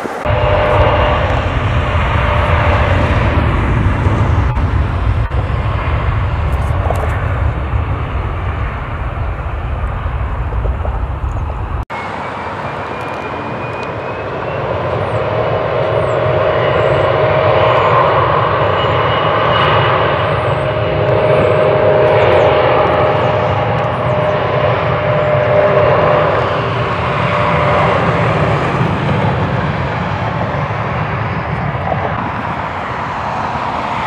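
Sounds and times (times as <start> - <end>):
jet engine whine: 0.0 - 34.0
jet engines roaring: 0.0 - 34.0.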